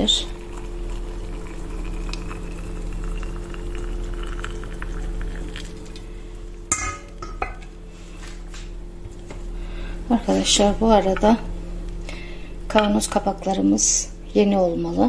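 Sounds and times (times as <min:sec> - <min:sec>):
boiling water pouring into a jar: 0:00.0 - 0:06.7
steady low hum: 0:00.0 - 0:15.0
glass clinking: 0:06.7 - 0:07.7.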